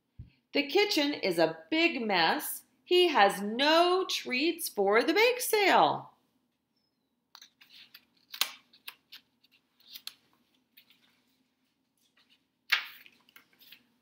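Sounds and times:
book pages turning: 7.4s - 14.0s.

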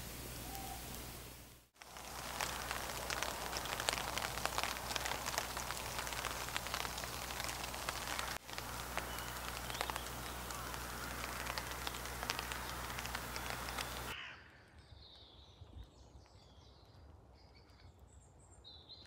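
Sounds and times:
rain pattering on a tarp: 0.0s - 14.2s.

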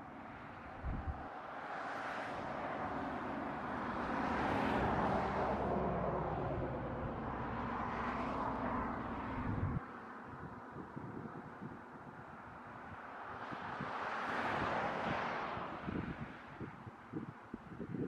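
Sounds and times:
vehicle passing by: 0.8s - 10.4s
low rumble: 9.3s - 9.8s.

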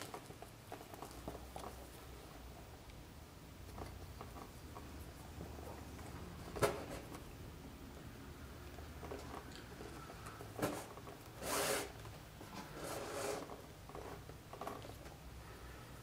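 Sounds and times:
rasping thread zip: 11.4s - 12.0s, 12.7s - 13.5s.

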